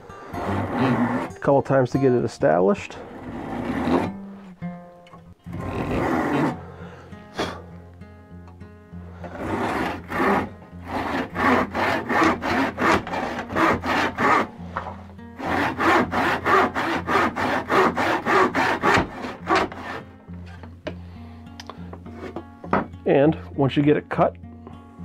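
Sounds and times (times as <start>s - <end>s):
handsaw cutting wood: 0.2s - 1.5s, 3.0s - 4.2s, 5.5s - 6.6s, 9.2s - 20.1s.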